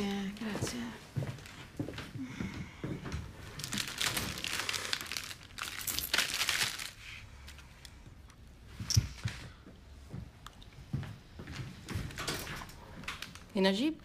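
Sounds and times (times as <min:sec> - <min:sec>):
plastic packet crinkling: 0:03.6 - 0:07.6.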